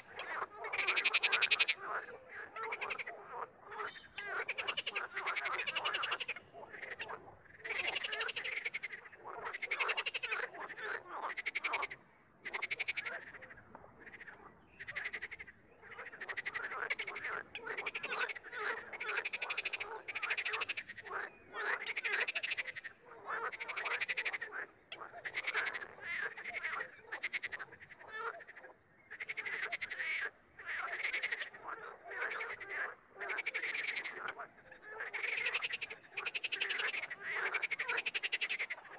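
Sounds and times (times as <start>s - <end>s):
frogs croaking: 0.0s - 38.9s.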